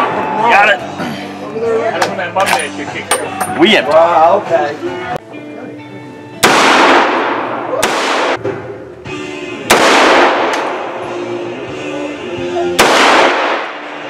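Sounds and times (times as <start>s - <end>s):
background music: 0.0s - 14.0s
rifle shots with echo: 6.4s - 8.4s, 9.7s - 11.0s, 12.8s - 14.0s.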